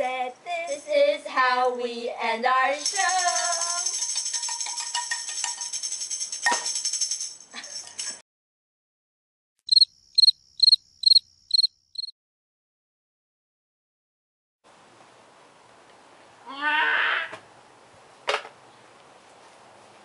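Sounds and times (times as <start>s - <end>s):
tambourine-like rattle: 2.8s - 8.2s
cricket chirps: 9.7s - 12.1s.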